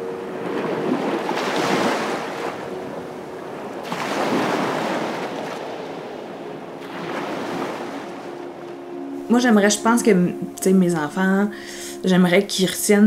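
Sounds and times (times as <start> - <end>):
sea waves washing onto beach: 0.0 - 9.4.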